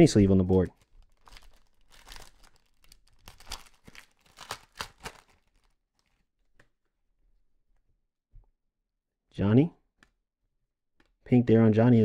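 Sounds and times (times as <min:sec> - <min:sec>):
plastic wrapping crinkling: 0:00.1 - 0:06.6.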